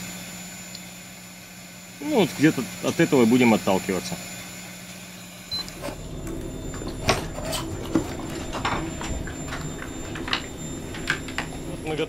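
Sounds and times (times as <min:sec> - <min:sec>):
low steady rumble: 0:05.5 - 0:12.0.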